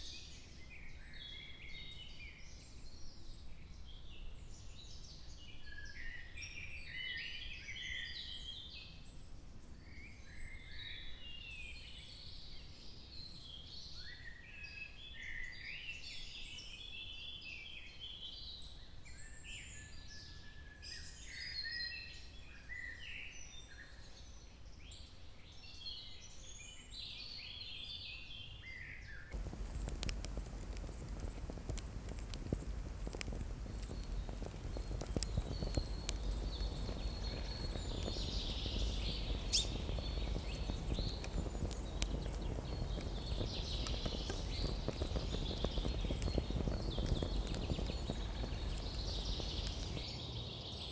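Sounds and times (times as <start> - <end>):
forest birds singing: 29.3 - 50.9
low outdoor rumble: 29.4 - 50.8.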